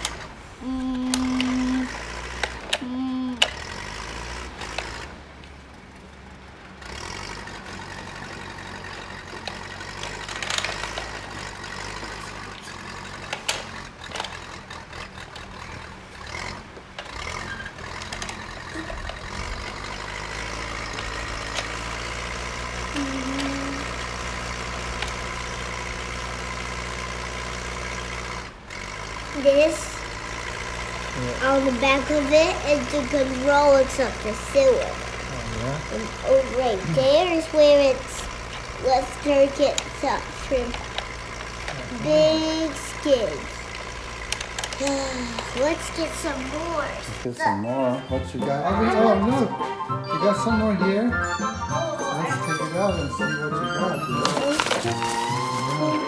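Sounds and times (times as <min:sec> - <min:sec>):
toy engine idle rumble: 0:00.0 - 0:47.5, 0:52.1 - 0:56.0
plastic toy clicks: 0:09.4 - 0:11.3, 0:13.2 - 0:14.6, 0:17.9 - 0:20.0, 0:43.7 - 0:45.6.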